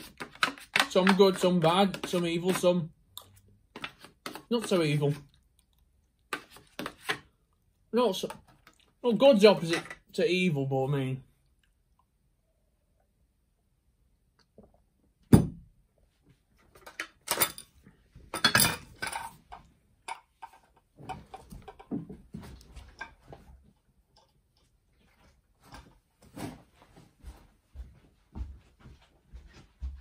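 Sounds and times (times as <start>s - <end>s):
crockery clinking: 18.3s - 19.4s.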